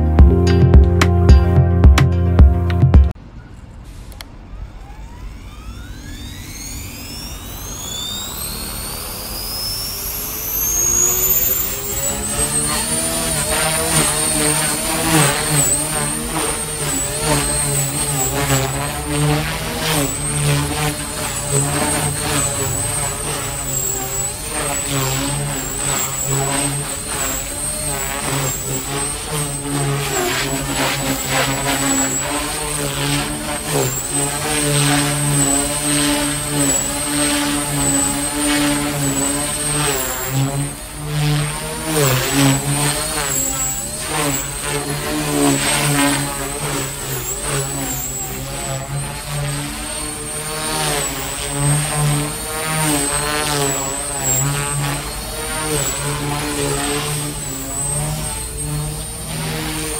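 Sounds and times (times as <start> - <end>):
rc helicopter rotor whine: 3.4 - 59.9.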